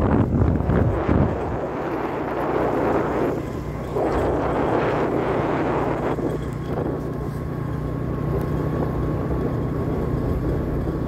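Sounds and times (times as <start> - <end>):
wind on microphone: 0.0 - 7.4
vehicle engine running: 0.0 - 11.0.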